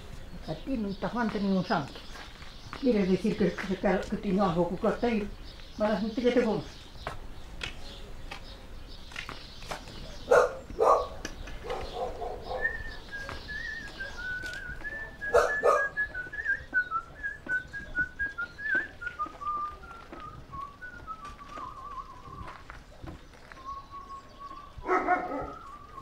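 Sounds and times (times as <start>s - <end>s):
dog barking: 10.2s - 13.4s, 15.3s - 16.0s, 24.8s - 25.6s
person whistling a slow tune: 12.6s - 22.6s, 25.4s - 26.0s.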